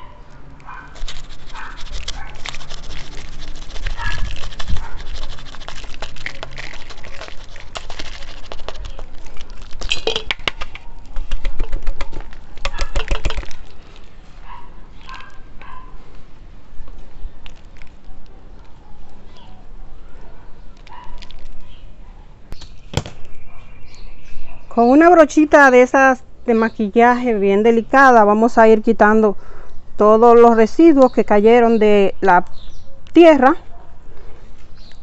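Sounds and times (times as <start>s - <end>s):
hands rustling potting soil: 0.6s - 19.4s, 20.6s - 21.9s.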